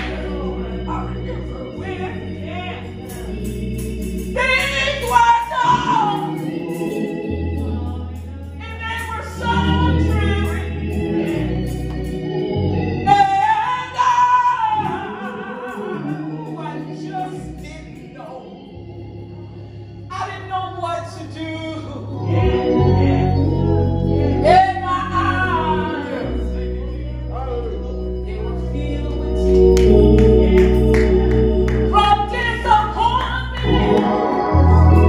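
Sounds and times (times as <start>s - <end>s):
people singing: 0.0s - 18.8s, 22.1s - 35.0s
organ: 0.0s - 35.0s
bass guitar: 22.0s - 35.0s.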